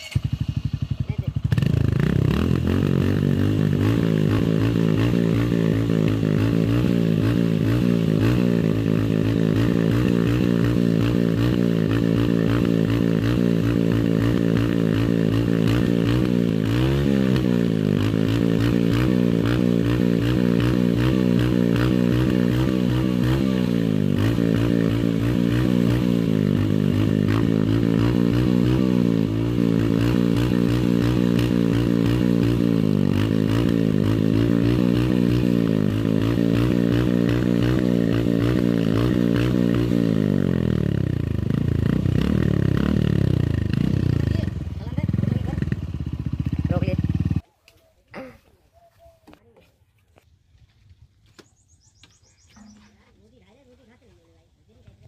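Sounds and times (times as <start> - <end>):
motorcycle engine running: 0.0 - 47.4.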